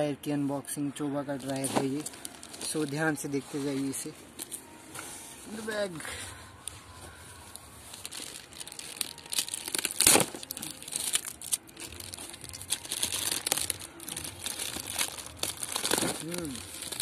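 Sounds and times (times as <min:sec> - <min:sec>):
plastic mailer bag crinkling: 0:01.4 - 0:04.1, 0:07.5 - 0:17.0.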